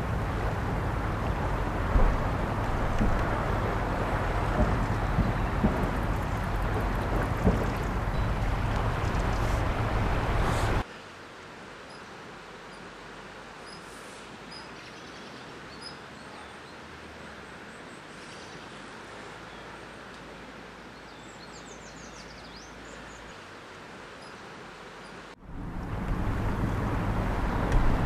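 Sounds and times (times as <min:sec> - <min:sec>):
birds chirping: 0:00.0 - 0:10.8
wind on microphone: 0:00.0 - 0:10.8, 0:25.4 - 0:28.0
river hissing: 0:00.0 - 0:28.0
rushing floodwater: 0:00.0 - 0:28.0.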